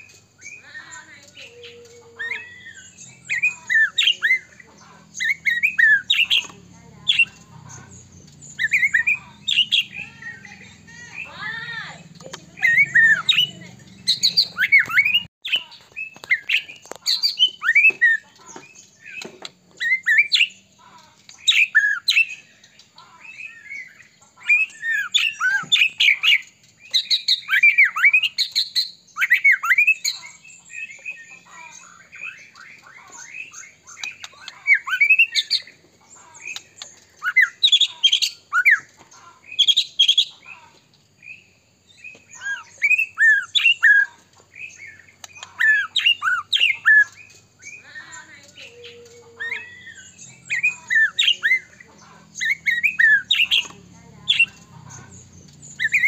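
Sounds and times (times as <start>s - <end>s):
songbird whistling rapid phrases: 0.0s - 20.7s, 21.4s - 22.5s, 23.2s - 40.6s, 41.3s - 56.0s.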